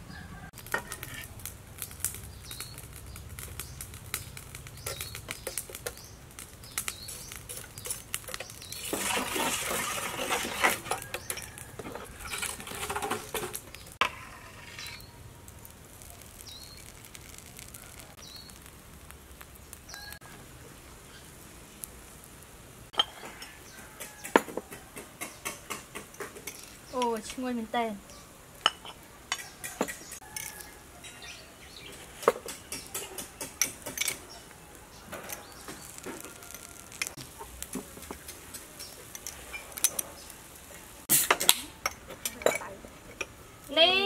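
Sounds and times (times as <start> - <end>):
ladle stirring egg in a steel bowl: 6.9 - 15.1.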